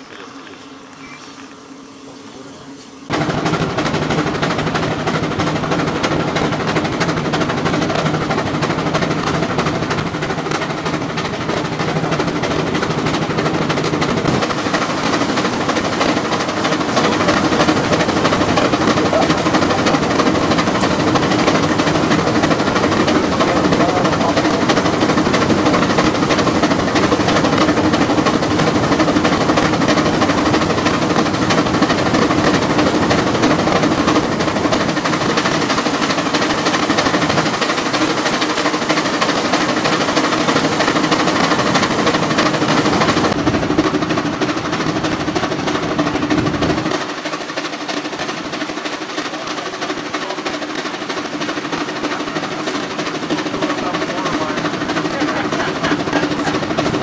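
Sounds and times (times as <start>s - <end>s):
belt and fan noise: 0.0s - 57.0s
steam engine exhaust beats: 0.0s - 57.0s.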